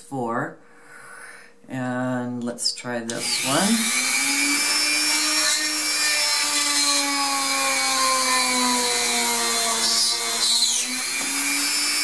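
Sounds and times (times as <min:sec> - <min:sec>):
rotary tool whine drilling: 0:03.1 - 0:12.0.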